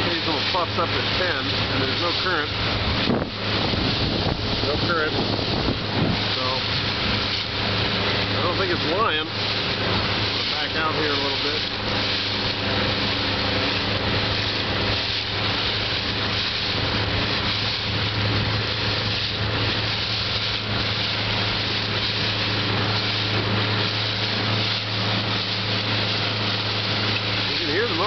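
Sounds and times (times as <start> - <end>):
powerboat engine humming: 0.0 - 28.0
water hissing past boat: 0.0 - 28.0
wind rushing: 2.6 - 8.2.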